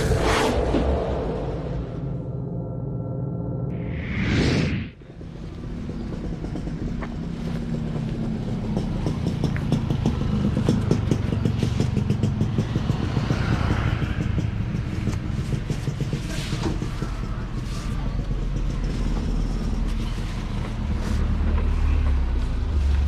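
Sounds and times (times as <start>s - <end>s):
vehicle engine rumbling: 0.0s - 23.0s
whoosh sound effect: 3.7s - 5.0s.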